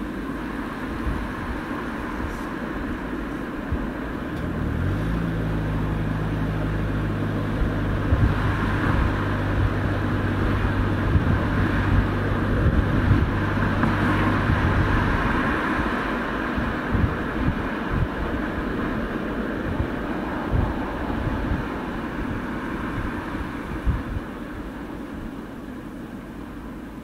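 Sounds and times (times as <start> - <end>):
car engine exhaust note: 0.0 - 27.0
road and tyre noise: 0.0 - 27.0.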